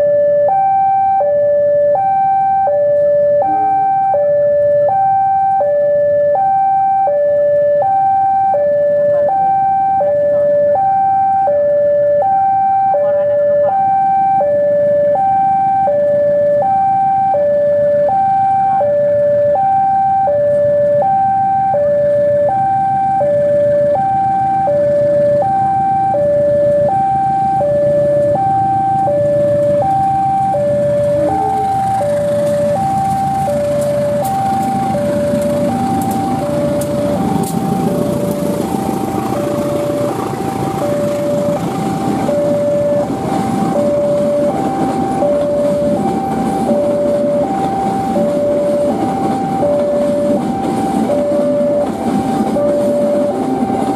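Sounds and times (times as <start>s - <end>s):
diesel locomotive rumble: 0.0s - 53.9s
two-tone electronic warning alarm: 0.0s - 53.9s.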